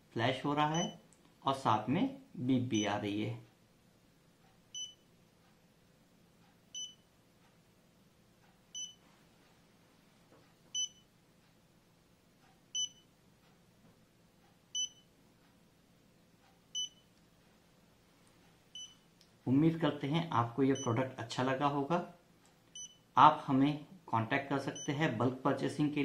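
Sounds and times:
short high alarm beeps: 0:00.7 - 0:01.0, 0:04.8 - 0:05.0, 0:06.8 - 0:07.1, 0:08.8 - 0:09.0, 0:10.8 - 0:11.0, 0:12.8 - 0:13.1, 0:14.8 - 0:15.1, 0:16.8 - 0:17.1, 0:22.8 - 0:23.1.

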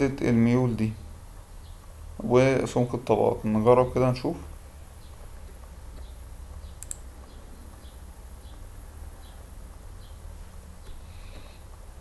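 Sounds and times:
low steady hum: 0:00.0 - 0:12.0
computer mouse click: 0:06.8 - 0:07.8.

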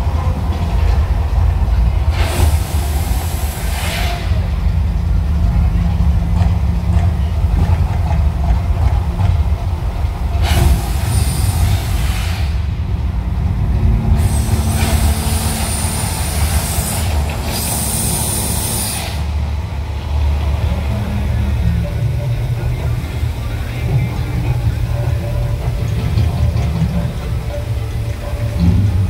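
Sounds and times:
deep continuous rumble: 0:00.0 - 0:29.0
loud hissing bursts: 0:02.0 - 0:04.8, 0:10.4 - 0:12.9, 0:14.1 - 0:19.8.

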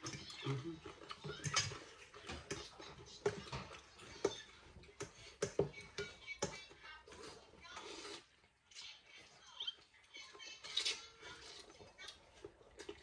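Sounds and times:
person chewing noodle soup: 0:07.0 - 0:08.6, 0:10.7 - 0:13.0.

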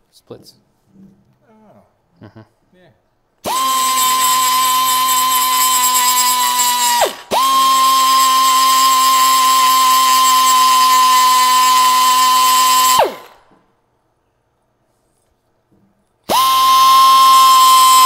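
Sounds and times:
die grinder whining: 0:03.4 - 0:13.5, 0:16.3 - 0:18.0.

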